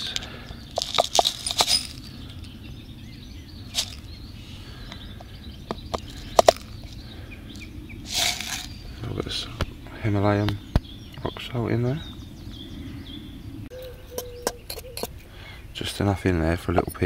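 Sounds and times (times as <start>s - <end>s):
short ringing clinks: 0.8s - 2.5s.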